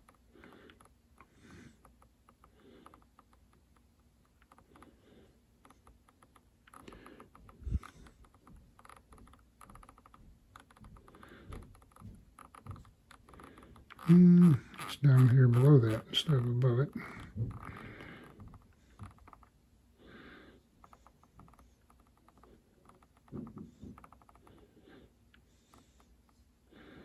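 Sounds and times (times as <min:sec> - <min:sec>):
scroll roller clicking: 0:05.6 - 0:19.6.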